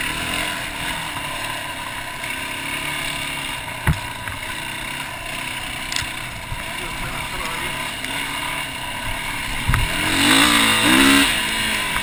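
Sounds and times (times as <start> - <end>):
motorcycle engine running: 0.0 - 12.0
heavy thump: 3.8 - 4.4.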